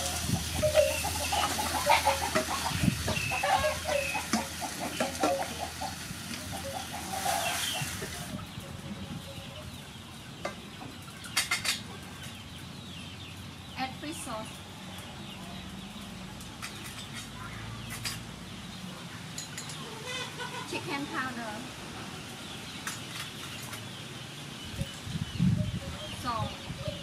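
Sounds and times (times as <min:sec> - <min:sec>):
hens clucking: 0:00.0 - 0:12.6, 0:19.7 - 0:21.7
utensils knocking on steel pot: 0:04.2 - 0:05.6
food hissing in hot oil: 0:07.0 - 0:08.3.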